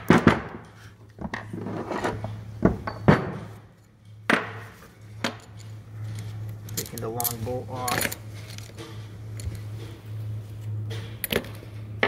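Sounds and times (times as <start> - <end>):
low hum: 0.6 - 12.0
metal parts knocking and clinking: 5.2 - 10.0, 10.9 - 11.8.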